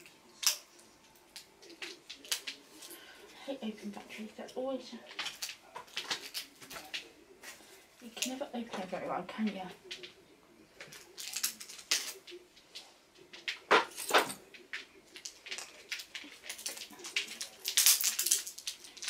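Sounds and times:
plastic packaging crackling: 10.8 - 13.7, 14.5 - 19.0.

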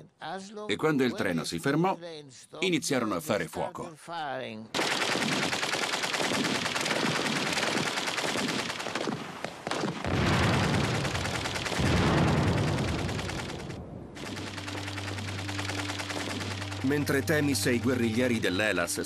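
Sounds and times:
rapid machine gun and rifle fire: 4.8 - 17.6
deep loud blasts: 10.0 - 16.9.

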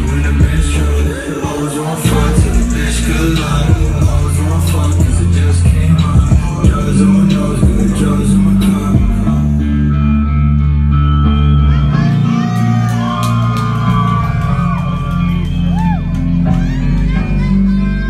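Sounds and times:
hip hop beat with deep bass: 0.0 - 18.0
guitar melody: 6.5 - 18.0.

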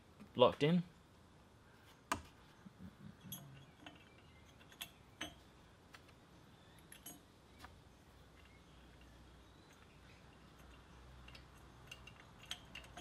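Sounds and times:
small metal parts clicking: 3.2 - 5.5, 6.7 - 7.3, 8.3 - 13.0.

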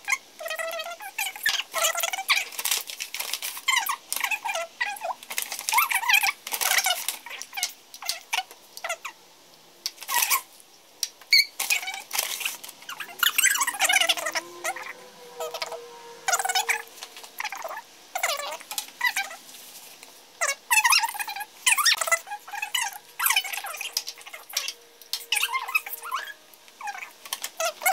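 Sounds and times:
sped-up squeaky voices: 12.9 - 19.4, 20.4 - 27.9.

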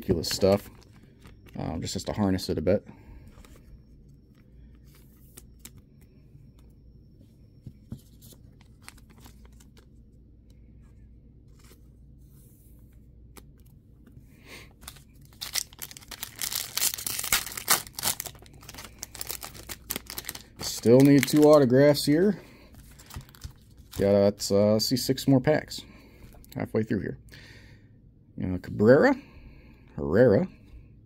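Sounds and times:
foil pack tearing and crinkling: 14.9 - 21.7
cards tapping and rustling: 22.8 - 24.0.

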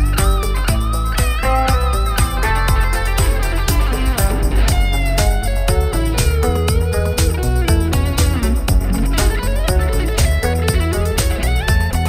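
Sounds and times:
guitar music over a beat: 0.0 - 12.0.

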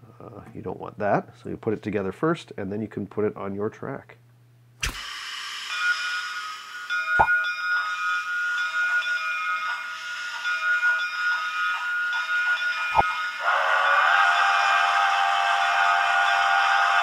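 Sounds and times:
model steam locomotive chuffing: 4.8 - 17.0
steam whistle blowing: 4.8 - 17.0.

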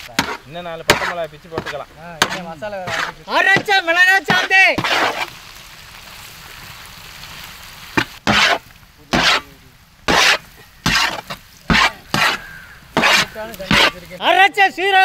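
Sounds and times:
spatula scraping a pan: 0.0 - 5.4, 8.0 - 14.2
food sizzling in a pan: 0.0 - 14.4.

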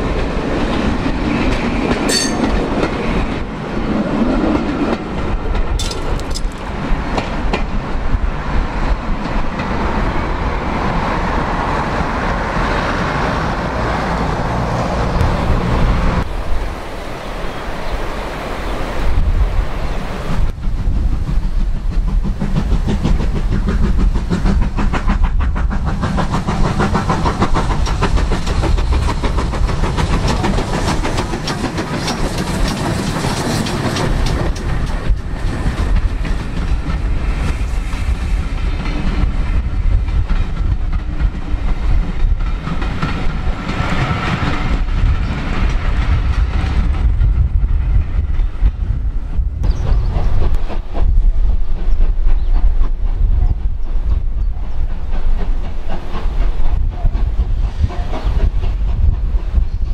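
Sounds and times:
coaches clattering over rails: 0.0 - 16.4, 21.1 - 48.8
steam locomotive working: 0.0 - 59.9.

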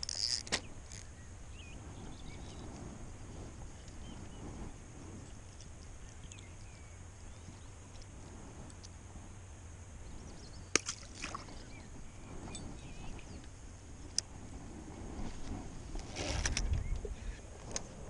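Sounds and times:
small water splashes: 10.7 - 11.6
fish splashing into water: 10.8 - 11.6.

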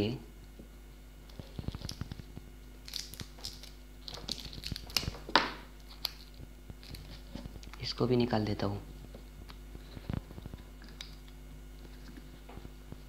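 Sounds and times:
foil crinkling: 1.4 - 5.3.

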